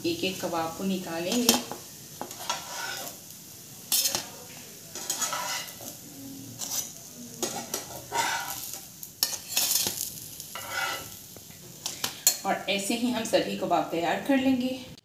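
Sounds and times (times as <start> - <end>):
hot oil sizzling: 0.0 - 15.0
metal spatula scraping pan: 1.3 - 3.2, 3.9 - 4.3, 4.9 - 11.2.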